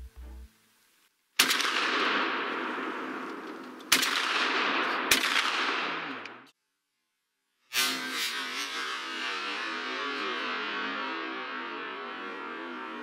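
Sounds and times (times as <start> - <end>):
shotgun shots echoing: 1.4 - 6.4.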